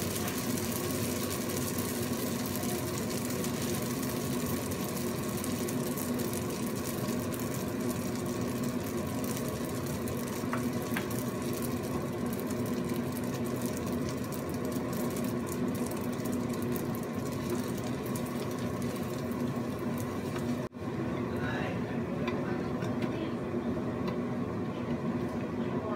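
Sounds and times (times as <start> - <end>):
food sizzling in a wok: 0.0 - 20.8.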